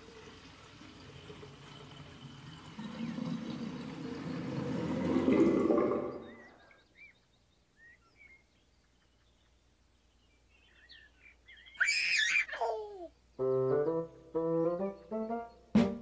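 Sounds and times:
water pouring and draining: 0.0s - 6.7s
faint birdsong: 0.0s - 16.0s
baby giggling: 11.8s - 13.1s.

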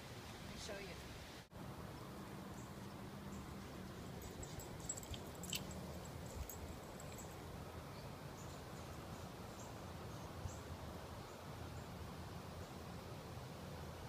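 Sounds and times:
low rumble and hiss: 0.0s - 14.0s.

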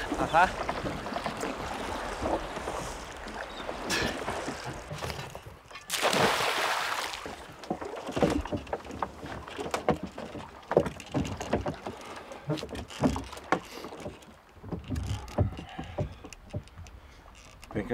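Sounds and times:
anchor splashing into water: 0.0s - 11.9s
wind and water wash: 0.0s - 17.9s
knocks on wooden boat: 7.6s - 16.6s.

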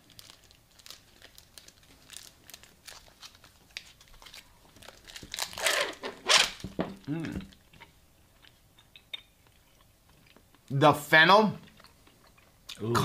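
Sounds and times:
plastic wrapper crinkling and tearing: 0.0s - 7.6s.

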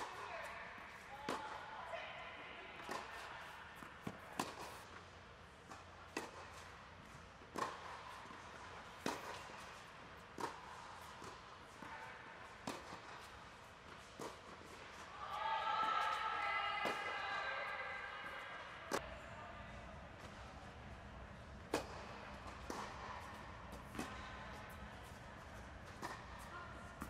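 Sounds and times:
tennis balls struck by racket: 0.0s - 1.7s, 2.8s - 15.1s, 16.8s - 17.2s, 21.5s - 27.0s
balls bouncing on hard court: 2.8s - 15.1s, 21.6s - 27.0s.

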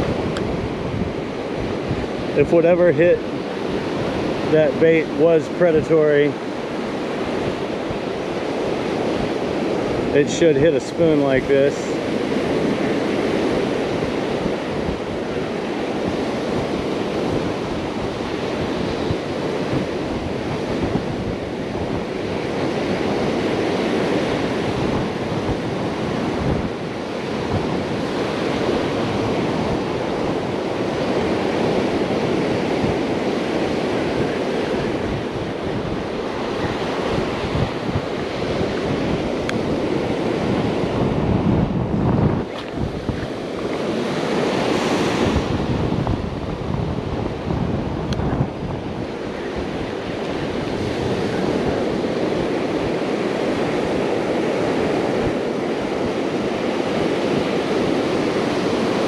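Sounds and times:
ocean surf breaking: 0.0s - 59.0s
wind buffeting microphone: 0.0s - 59.0s.

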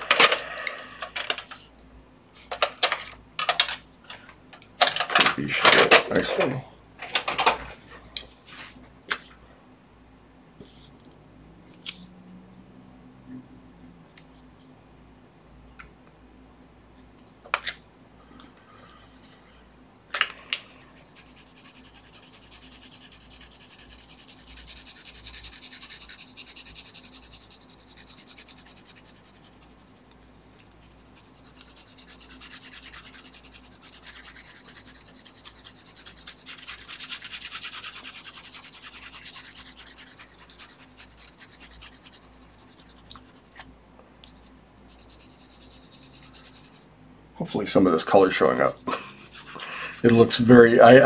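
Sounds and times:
pencil scratching on paper: 20.8s - 30.0s, 30.8s - 43.6s, 44.4s - 46.9s, 49.0s - 51.0s.

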